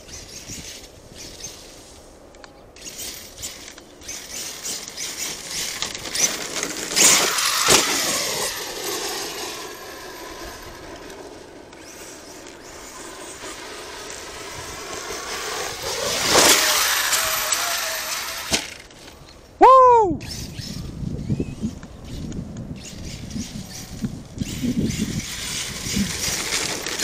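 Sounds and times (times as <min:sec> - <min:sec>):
electric motor whining: 0:02.8 - 0:19.1.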